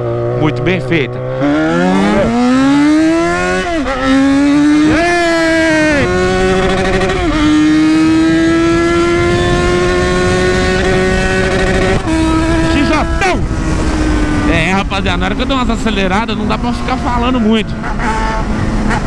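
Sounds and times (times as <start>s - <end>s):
motorcycle engine accelerating: 0.0s - 19.0s.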